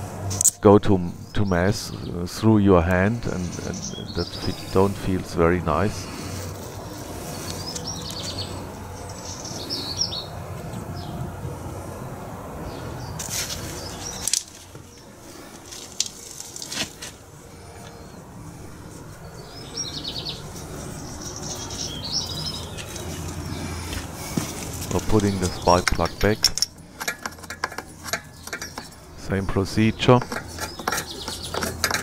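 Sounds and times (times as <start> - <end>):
songbird trilling: 19.3 - 23.8.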